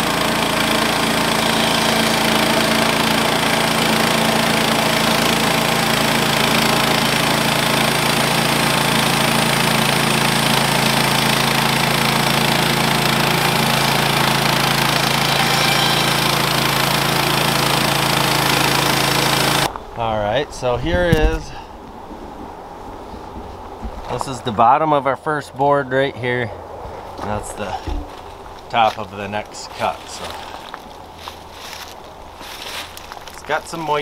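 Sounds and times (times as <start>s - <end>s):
band blade cutting log: 0.0s - 19.7s, 21.0s - 21.5s
bandsaw mill engine running: 0.0s - 19.7s, 29.5s - 34.0s.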